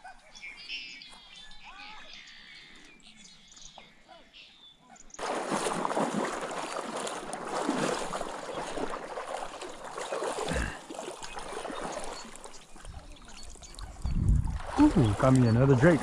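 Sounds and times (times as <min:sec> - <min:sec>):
water splashing from wading: 0:05.2 - 0:16.0.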